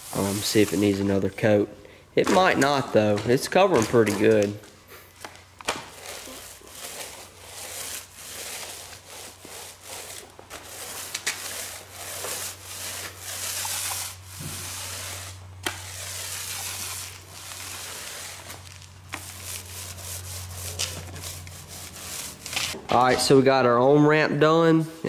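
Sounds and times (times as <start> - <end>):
paint roller rubbing on concrete: 0.0 - 1.6, 5.9 - 22.8.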